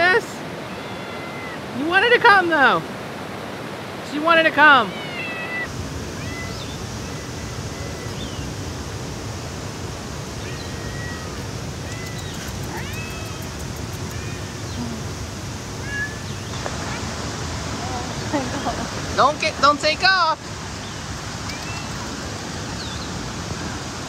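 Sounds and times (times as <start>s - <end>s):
river rapids and waterfall: 0.0s - 24.0s
faint high chirps and whistles: 21.4s - 22.0s.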